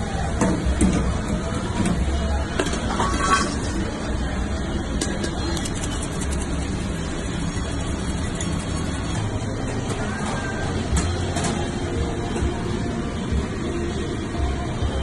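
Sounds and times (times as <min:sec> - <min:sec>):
low kitchen rumble: 0:00.0 - 0:15.0
fries sliding: 0:02.7 - 0:04.1, 0:05.1 - 0:10.6.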